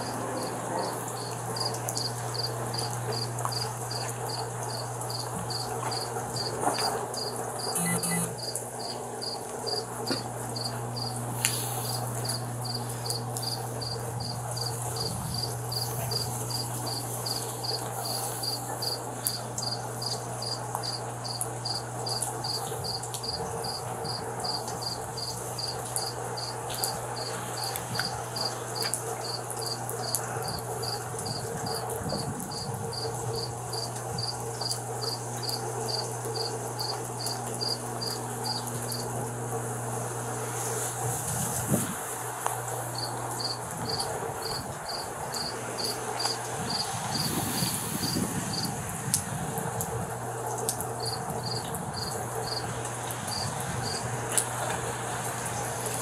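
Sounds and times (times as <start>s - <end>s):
cricket chirping: 0.0s - 6.5s, 10.6s - 11.2s, 11.8s - 31.9s, 32.5s - 39.1s, 43.0s - 48.7s, 51.0s - 52.7s.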